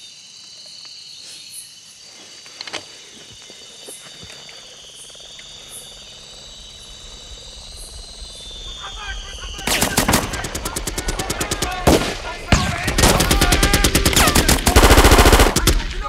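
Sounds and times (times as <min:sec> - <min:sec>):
insect chirping: 0:00.0 - 0:16.0
sharp clicks: 0:09.5 - 0:16.0.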